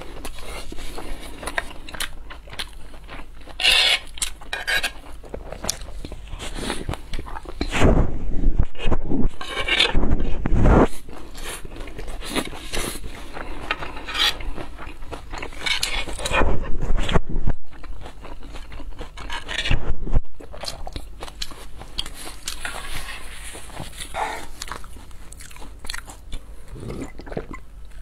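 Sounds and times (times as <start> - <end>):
metal spoon scraping a plate: 3.6 - 5.1, 9.3 - 10.0, 13.6 - 14.4, 15.5 - 16.4.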